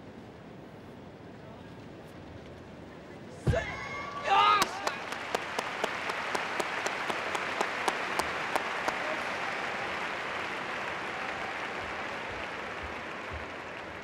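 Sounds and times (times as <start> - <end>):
crowd applauding: 4.1 - 14.0.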